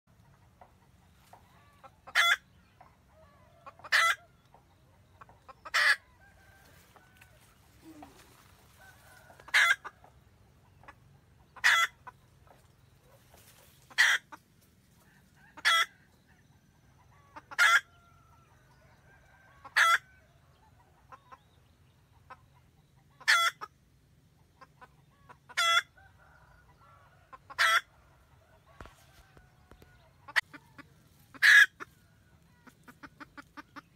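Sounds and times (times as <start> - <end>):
faint hen clucks: 0.1 - 33.9
hen cackling calls: 1.2 - 4.4, 5.2 - 10.1, 10.8 - 12.2, 13.4 - 14.4, 15.0 - 16.4, 17.0 - 18.6, 19.3 - 20.2, 23.0 - 23.8, 24.6 - 33.9.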